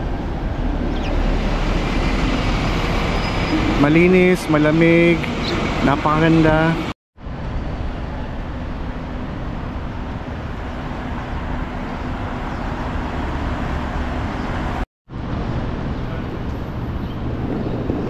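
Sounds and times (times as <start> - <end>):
road traffic hum: 0.0 - 18.0.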